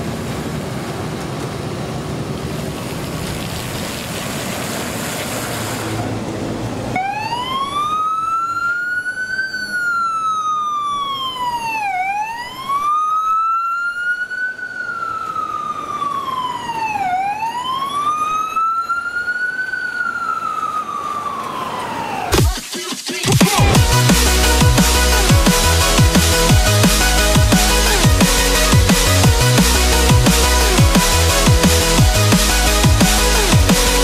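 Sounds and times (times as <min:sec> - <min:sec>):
traffic noise: 0:00.0 - 0:22.6
siren wailing: 0:05.7 - 0:22.6, 0:23.2 - 0:34.0.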